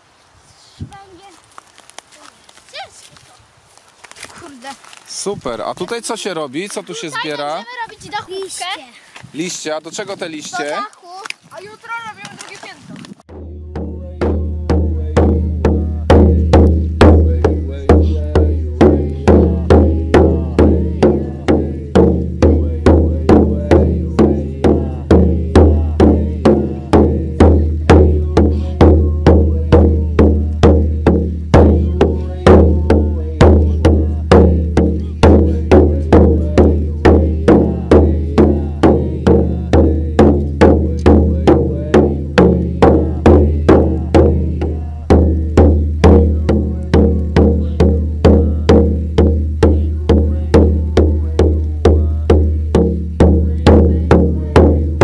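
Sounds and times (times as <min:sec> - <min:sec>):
steady beat of struck notes: 0:13.3 - 0:55.0.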